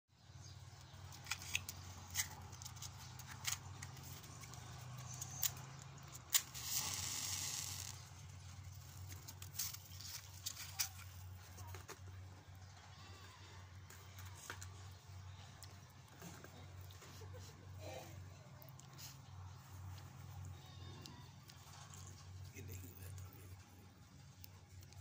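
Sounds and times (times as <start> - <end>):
hiss of cigarette lighting: 6.3 - 8.1.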